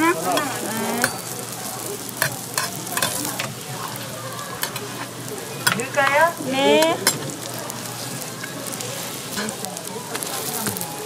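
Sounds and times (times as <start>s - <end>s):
pancakes sizzling in oil: 0.0s - 11.0s
metal spatula clicking on griddle: 0.3s - 6.2s, 6.8s - 7.7s.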